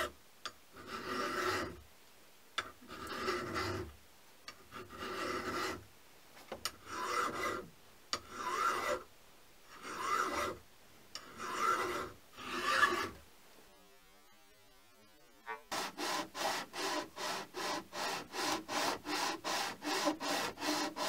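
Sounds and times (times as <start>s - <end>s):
hand file rasping on steel: 0.8s - 1.8s, 2.8s - 3.9s, 4.6s - 5.8s, 6.7s - 9.0s, 9.7s - 10.6s, 11.2s - 13.2s, 15.6s - 21.0s.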